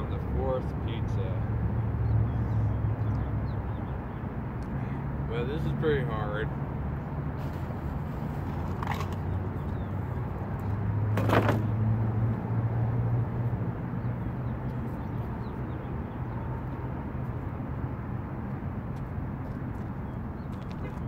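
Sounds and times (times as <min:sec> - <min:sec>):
road traffic rumble: 0:00.0 - 0:21.0
vehicle passing: 0:04.4 - 0:21.0.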